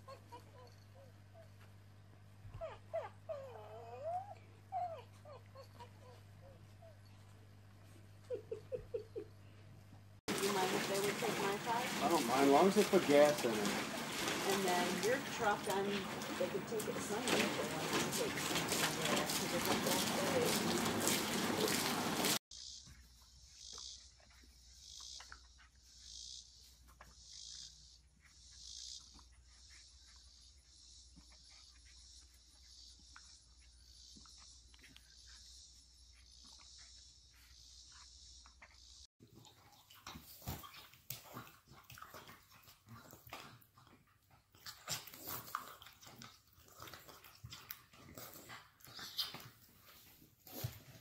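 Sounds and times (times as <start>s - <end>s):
dog splashing in pool: 10.3s - 22.4s
dog mouth and nose noises: 10.7s - 22.4s, 37.9s - 51.0s
insect chorus buzzing: 22.5s - 39.0s.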